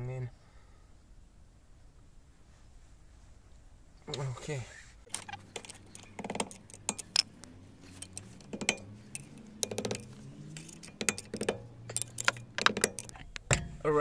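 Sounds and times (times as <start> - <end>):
screwdriver clinking on metal: 5.1 - 13.7.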